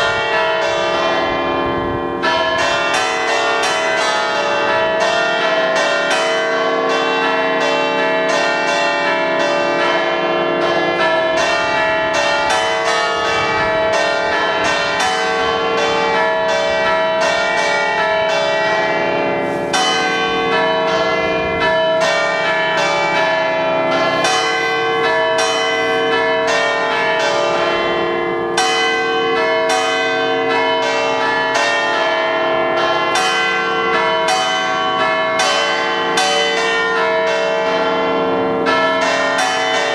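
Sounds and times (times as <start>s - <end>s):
church bells playing a tune: 0.0s - 39.9s.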